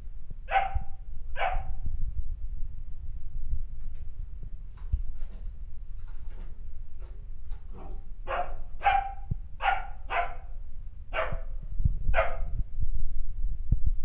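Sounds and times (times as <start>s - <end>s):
dog barking: 0.5s - 1.8s, 7.7s - 11.5s, 12.1s - 12.5s.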